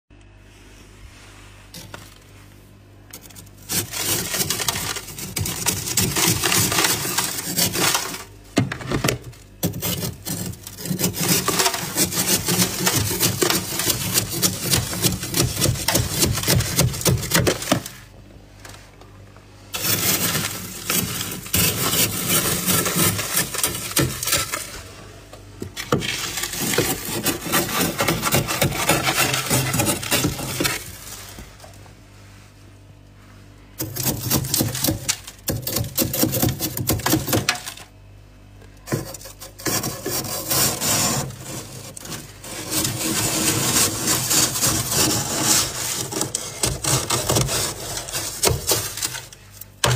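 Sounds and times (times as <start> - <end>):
scraper scraping frost: 3.2 - 8.4, 9.6 - 18.1, 19.7 - 24.9, 25.8 - 31.7, 33.7 - 37.8, 38.9 - 49.6.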